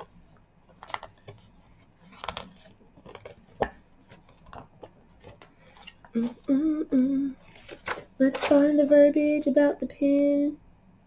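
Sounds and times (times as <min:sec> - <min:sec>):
packaging being handled: 0:00.7 - 0:06.5
woman humming: 0:06.1 - 0:07.4.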